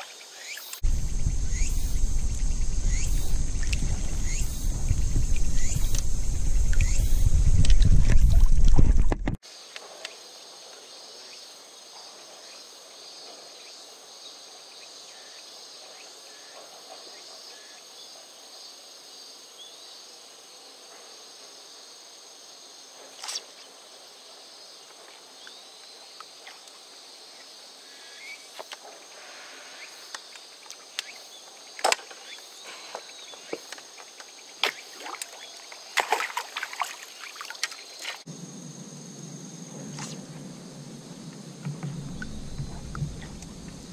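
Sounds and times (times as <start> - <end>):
insect drone: 0.0 - 43.9
faint bird chirps: 0.4 - 7.4
water sloshing: 34.6 - 38.3.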